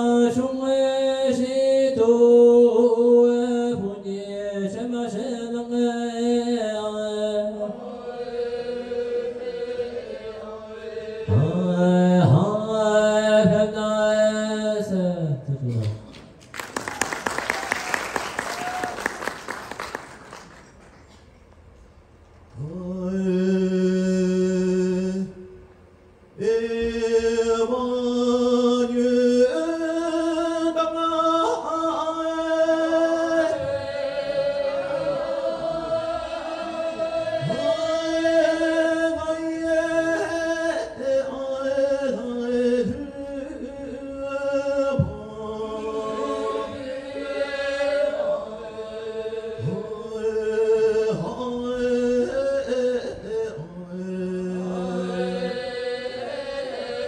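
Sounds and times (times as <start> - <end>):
person singing opera: 26.4 - 57.0.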